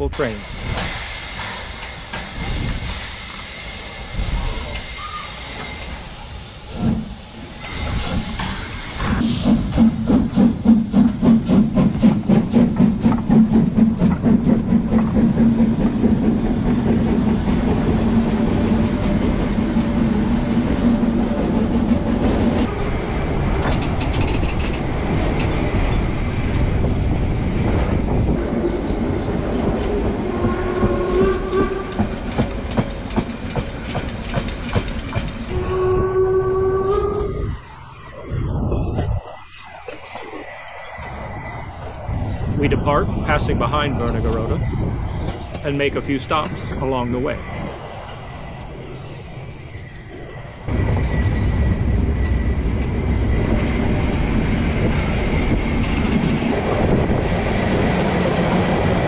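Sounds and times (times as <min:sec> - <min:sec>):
steam hissing: 0:00.0 - 0:23.5
steam locomotive exhaust chuffs: 0:00.0 - 0:37.6
wheels clicking over rail joints: 0:23.5 - 0:25.8, 0:29.0 - 0:35.5, 0:54.8 - 0:57.4.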